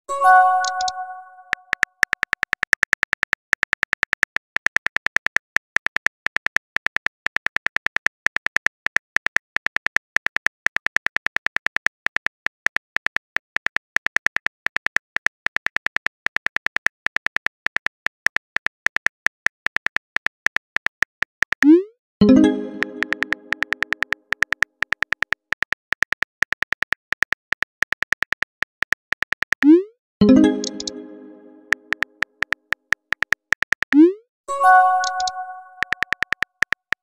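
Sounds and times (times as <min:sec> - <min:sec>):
phone keyboard typing clicks: 0:00.3 - 0:04.4, 0:21.6 - 0:34.0, 0:34.7 - 0:36.8.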